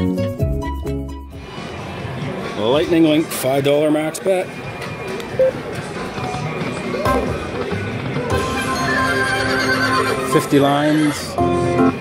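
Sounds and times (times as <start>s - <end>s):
slot machine electronic music: 5.3s - 5.7s, 6.6s - 12.0s.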